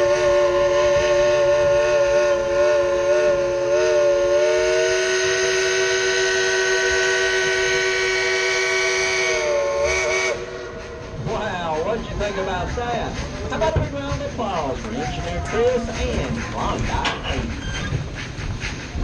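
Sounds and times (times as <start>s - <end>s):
steam locomotive whistle: 0.0s - 11.1s.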